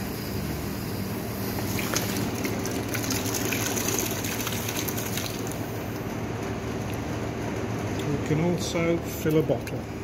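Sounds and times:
machine hum: 0:00.0 - 0:10.0
carbonated water splashing and fizzing: 0:01.5 - 0:06.0.

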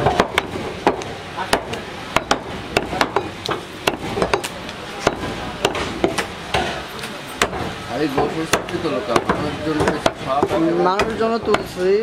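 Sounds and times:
cleaver chopping on wooden block: 0:00.0 - 0:06.8, 0:07.4 - 0:11.8.

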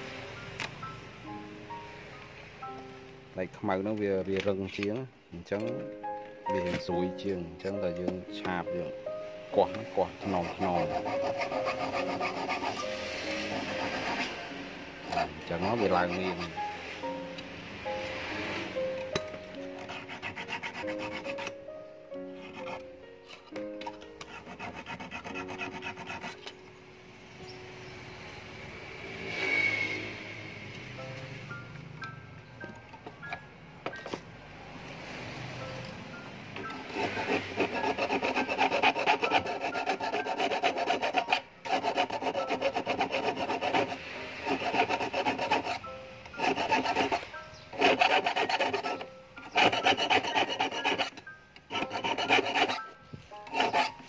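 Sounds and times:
file rasping on fish hook: 0:10.2 - 0:12.8, 0:15.1 - 0:16.6, 0:24.3 - 0:26.4, 0:36.9 - 0:45.8, 0:46.4 - 0:47.2, 0:47.8 - 0:51.1, 0:51.7 - 0:52.8, 0:53.4 - 0:54.0.

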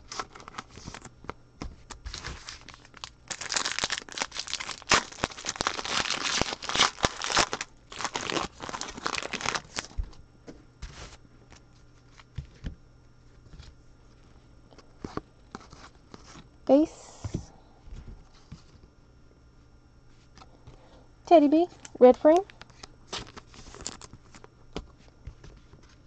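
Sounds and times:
foil wrapper crinkling and tearing: 0:00.0 - 0:10.1, 0:22.4 - 0:24.5.

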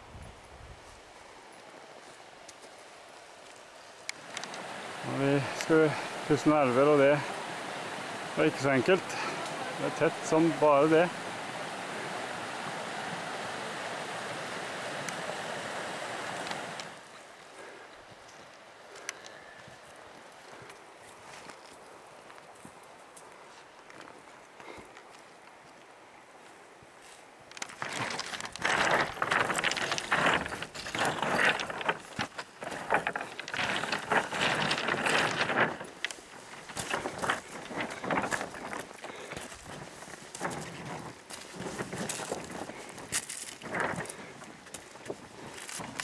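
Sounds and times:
stream rushing: 0:00.9 - 0:26.4, 0:27.2 - 0:46.0
faint clicks: 0:18.2 - 0:19.4
footsteps crunching on stones: 0:27.0 - 0:46.0.

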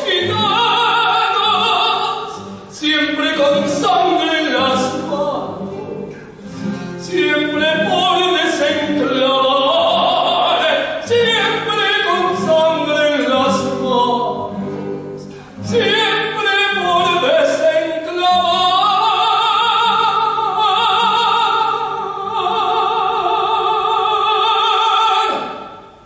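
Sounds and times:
choir singing with vibrato: 0:15.8 - 0:26.0.

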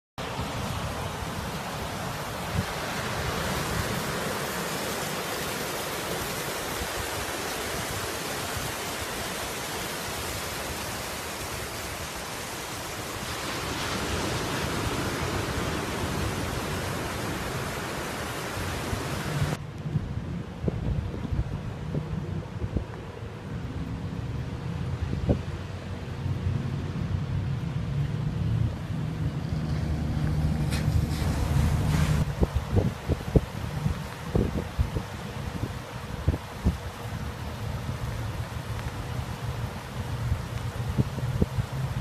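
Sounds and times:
ocean surf breaking: 0:00.2 - 0:19.6, 0:29.3 - 0:40.2
wind buffeting microphone: 0:13.2 - 0:42.0.

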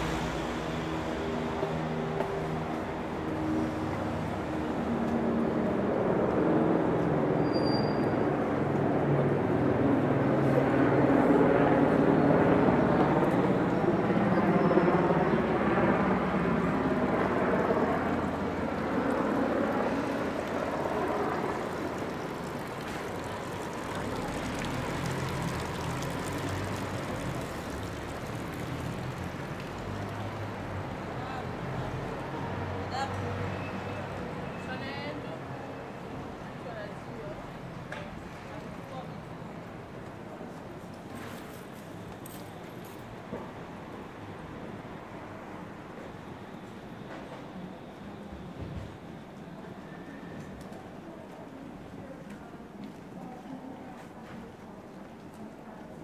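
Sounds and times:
vehicle passing by: 0:00.0 - 0:07.3, 0:15.4 - 0:35.0.

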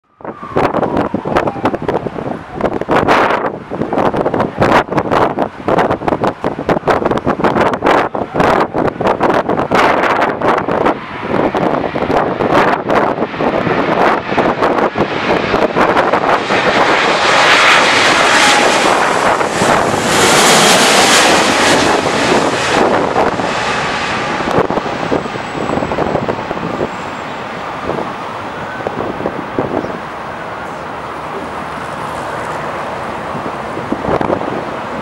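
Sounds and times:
jet airliner passing overhead: 0:00.0 - 0:35.0
wind buffeting microphone: 0:00.1 - 0:35.0
faint high jet whine: 0:09.7 - 0:35.0.

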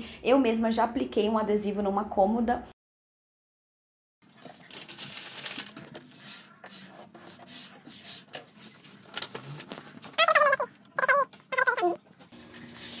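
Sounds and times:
vinyl film rustling and scraping: 0:04.3 - 0:10.2.

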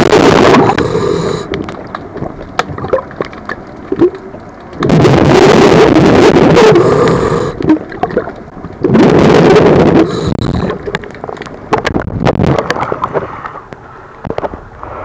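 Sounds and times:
water rushing and bubbling: 0:00.0 - 0:14.5
water drips: 0:01.5 - 0:04.9, 0:07.6 - 0:08.9.

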